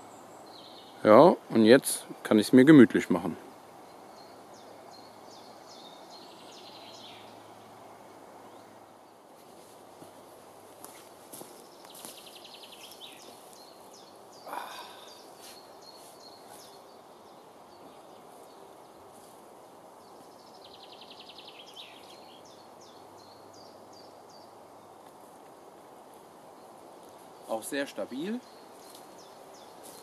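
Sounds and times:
woodland ambience: 0.0 - 30.0
songbird trilling: 11.8 - 18.3, 20.4 - 24.6.

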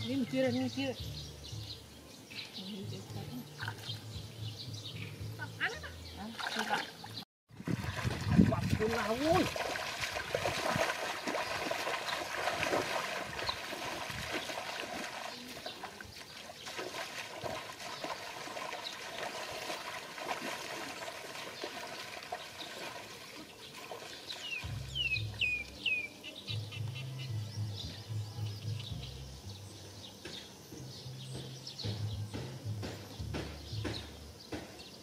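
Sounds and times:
bird chirping: 0.0 - 7.2, 21.4 - 35.0
bare feet splashing in water: 2.4 - 4.3, 6.2 - 26.1
trickling water: 2.4 - 4.3, 5.6 - 26.4.

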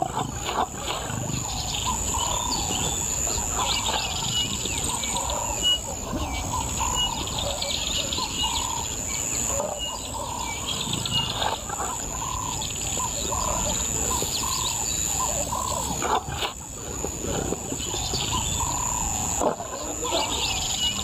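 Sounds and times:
bush background: 0.0 - 21.0
low warbling bird calls: 0.0 - 21.0.

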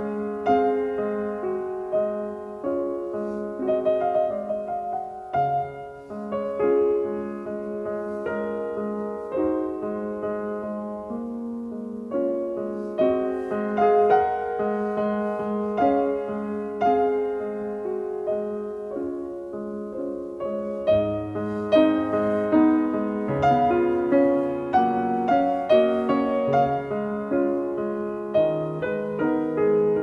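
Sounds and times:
piano music: 0.0 - 30.0.

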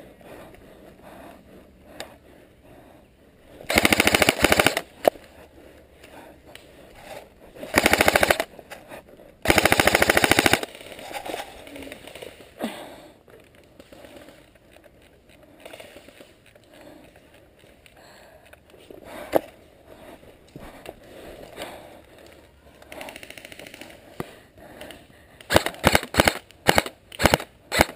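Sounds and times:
airsoft rifle full-auto bursts: 3.7 - 5.0, 7.7 - 8.5, 9.4 - 11.0, 25.5 - 27.9.

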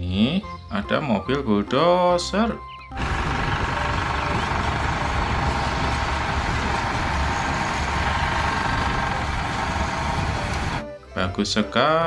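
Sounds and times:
bulldozer diesel engine running: 2.9 - 10.8.

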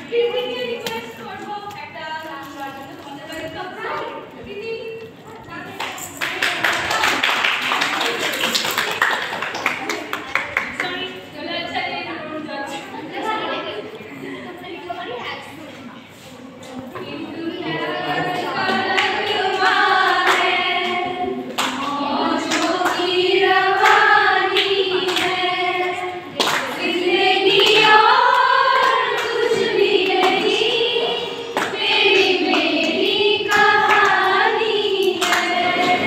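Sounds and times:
women singing together: 0.0 - 5.1, 11.3 - 13.4, 16.7 - 36.0
hand claps: 5.8 - 11.0, 18.7 - 23.2, 26.4 - 26.8, 35.0 - 36.0.

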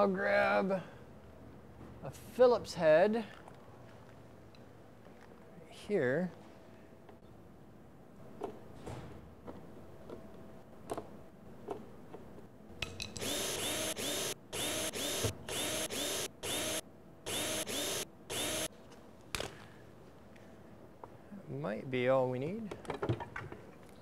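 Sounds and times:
cordless drill bursts: 13.2 - 18.7.

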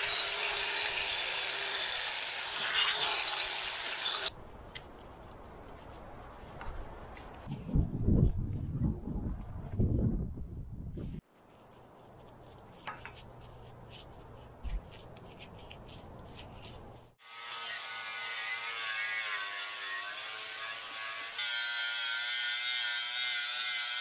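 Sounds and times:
angle grinder grinding metal: 0.0 - 4.3, 17.2 - 24.0.

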